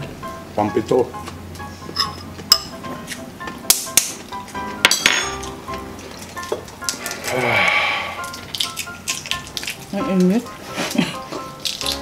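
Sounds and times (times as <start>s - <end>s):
background music: 0.0s - 12.0s
dishes and eggshells clinking: 4.8s - 5.6s.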